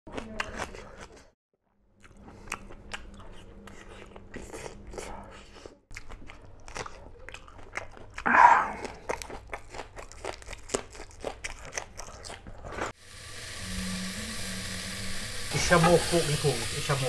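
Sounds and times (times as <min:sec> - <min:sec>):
person chewing crunchy meat: 0:01.9 - 0:13.0.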